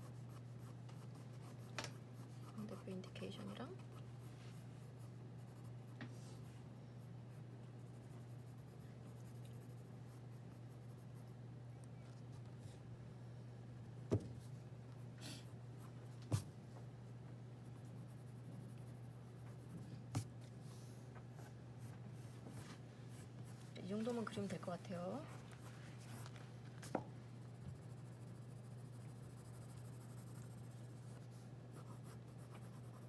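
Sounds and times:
pencil scratching on paper: 0.0s - 5.8s, 7.3s - 11.3s, 27.4s - 33.0s.

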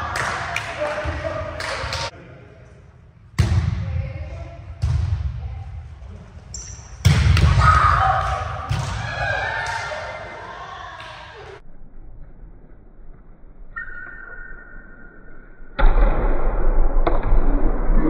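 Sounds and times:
volleyball hits echoing in gym: 0.0s - 2.1s, 3.3s - 5.9s, 6.8s - 11.6s, 15.8s - 17.5s.

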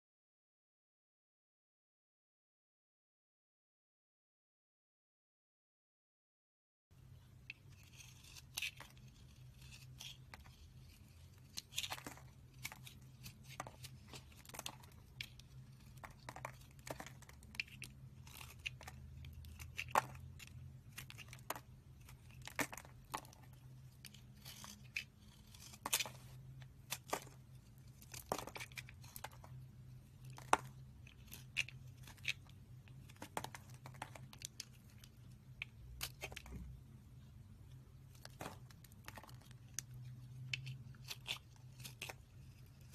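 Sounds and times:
blade cutting dry soap: 7.4s - 36.7s, 38.2s - 42.9s.

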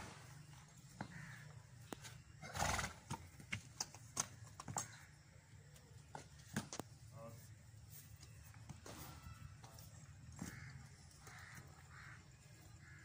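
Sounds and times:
hooves knocking on hard ground: 3.0s - 7.0s.

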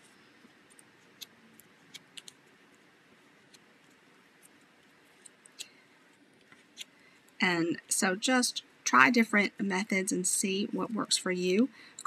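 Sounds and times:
paper clicks and crackles: 0.0s - 7.4s.

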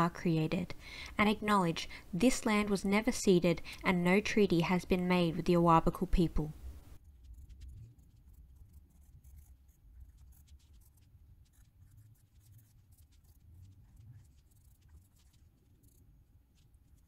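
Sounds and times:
pencil scratching on paper: 7.0s - 17.0s.

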